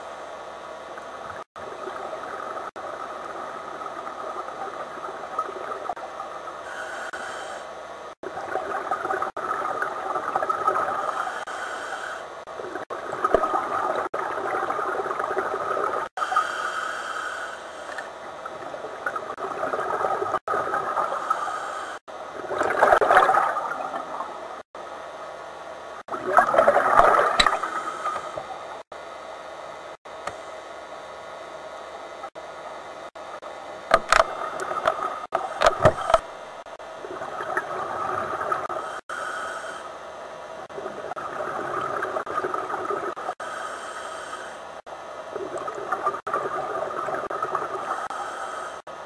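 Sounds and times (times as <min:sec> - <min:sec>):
underwater bubbles gurgling: 0:01.0 - 0:07.0, 0:08.2 - 0:16.1, 0:18.0 - 0:21.6, 0:22.3 - 0:24.6, 0:26.1 - 0:28.9, 0:36.9 - 0:39.0, 0:40.6 - 0:43.4, 0:45.2 - 0:48.4
regulator inhalation hiss: 0:06.6 - 0:07.7, 0:11.0 - 0:12.3, 0:16.2 - 0:18.1, 0:21.2 - 0:22.1, 0:38.7 - 0:39.9, 0:43.3 - 0:44.8, 0:47.8 - 0:48.9.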